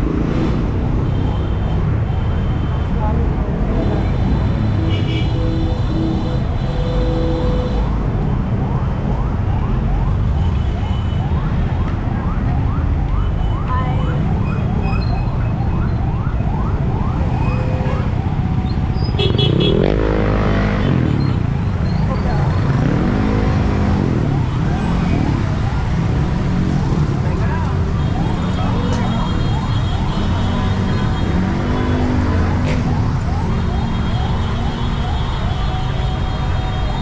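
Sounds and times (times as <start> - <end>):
heavy road traffic rumbling: 0.0 - 37.0
siren yelping: 8.4 - 19.9, 21.3 - 37.0.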